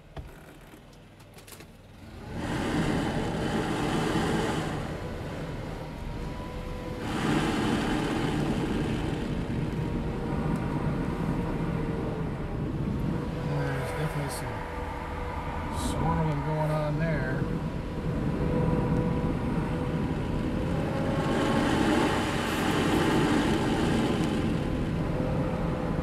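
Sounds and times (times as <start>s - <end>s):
leaf blower running: 2.2s - 10.3s, 20.7s - 24.9s.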